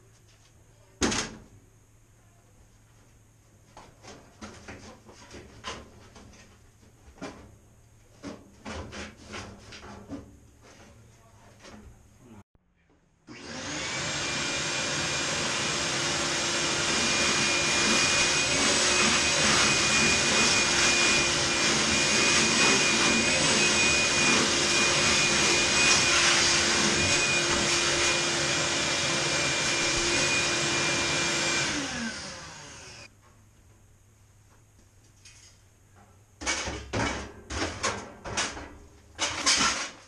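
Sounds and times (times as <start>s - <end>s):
vacuum cleaner running: 13.3s - 33.1s.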